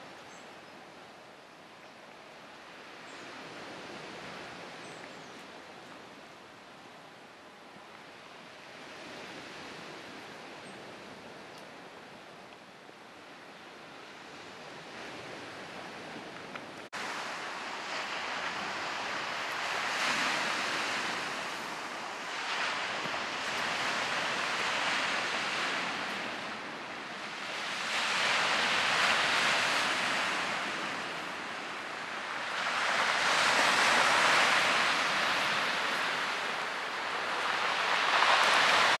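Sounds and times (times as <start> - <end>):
waves breaking on rocky shore: 14.8 - 39.0.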